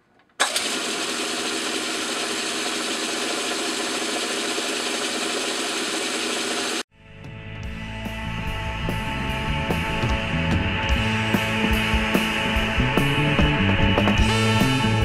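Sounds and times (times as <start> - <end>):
metal lathe whirring: 0.4 - 6.8.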